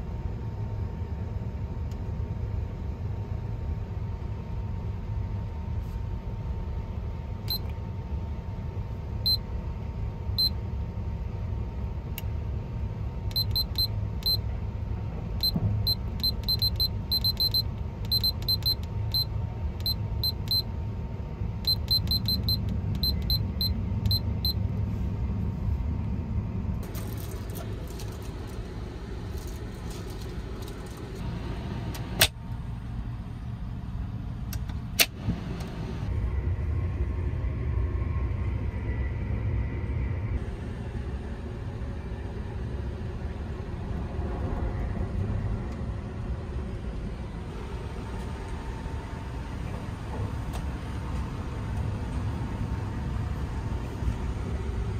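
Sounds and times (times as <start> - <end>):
moving train rumble: 0.0 - 54.9
alarm clock beeps: 13.3 - 14.4, 15.4 - 20.6, 21.7 - 24.6.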